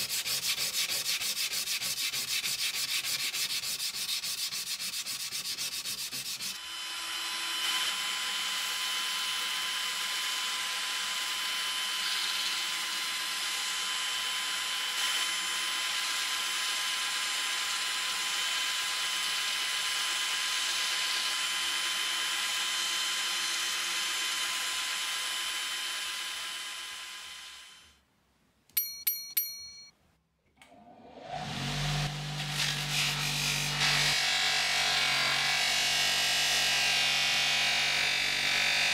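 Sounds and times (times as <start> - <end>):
sandpaper rubbing on steel blade: 0.0 - 6.6, 32.5 - 34.1
sharp ringing clicks: 28.7 - 29.9.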